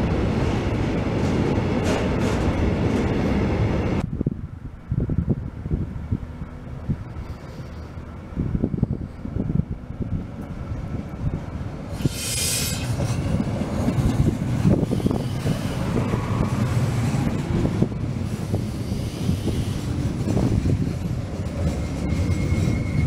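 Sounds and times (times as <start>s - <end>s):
train wheels clattering on rails: 0.0s - 4.0s, 11.8s - 23.0s
diesel train engine rumbling: 0.0s - 23.0s.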